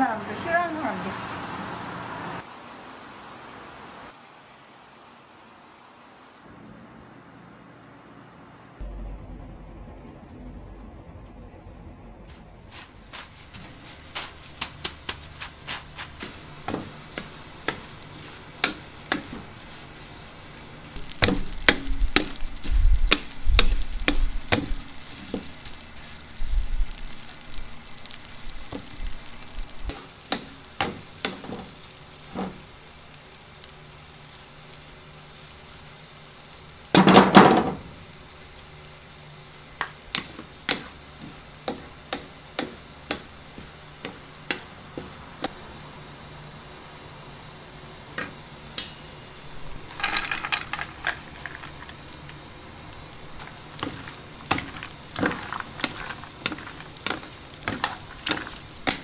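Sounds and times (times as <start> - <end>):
light sizzling hiss: 0.0 - 8.8, 12.3 - 59.0
wooden spatulas scraping metal pot: 53.4 - 59.0.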